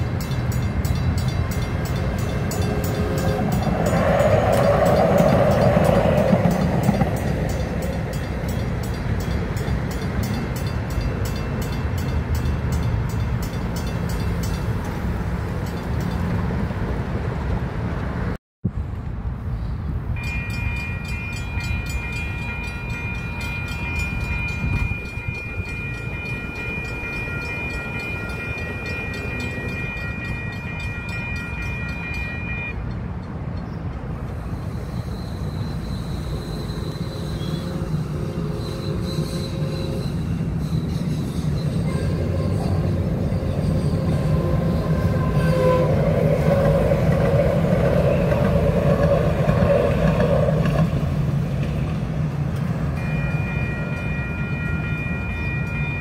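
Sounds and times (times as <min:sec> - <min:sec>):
crossing bell ringing: 0:00.0 - 0:16.5, 0:20.1 - 0:33.0, 0:52.8 - 0:56.0
distant crossing warning bell: 0:00.0 - 0:16.5, 0:20.2 - 0:33.0, 0:52.8 - 0:56.0
light-rail train passing: 0:00.0 - 0:56.0.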